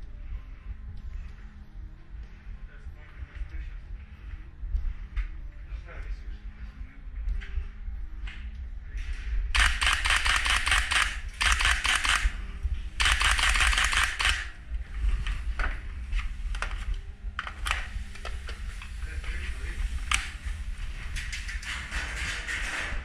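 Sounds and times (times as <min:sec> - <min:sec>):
low rumble: 0:00.0 - 0:23.0
airsoft guns firing: 0:13.0 - 0:14.5.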